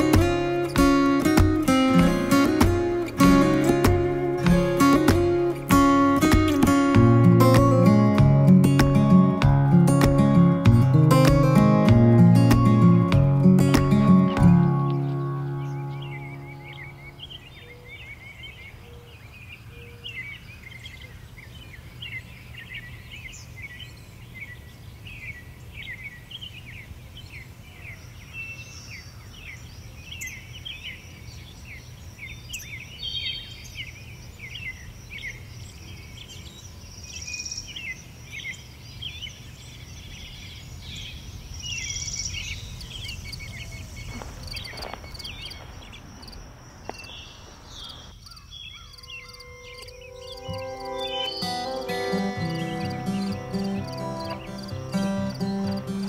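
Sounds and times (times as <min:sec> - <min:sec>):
small birds chirping: 0:00.0 - 0:56.0
steady high-pitched tone: 0:49.1 - 0:56.0.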